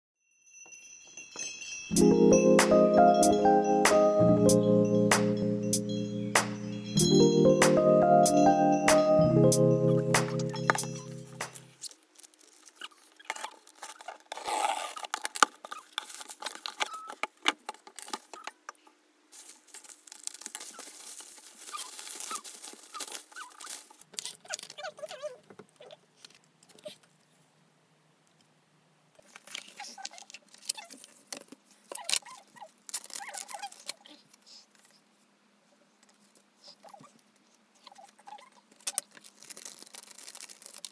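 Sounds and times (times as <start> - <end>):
bubble wrap crinkling: 10.6 - 18.4, 19.3 - 25.4, 29.2 - 34.2, 38.0 - 40.9
cardboard packaging handled: 11.8 - 18.5, 19.3 - 24.9, 38.8 - 40.9.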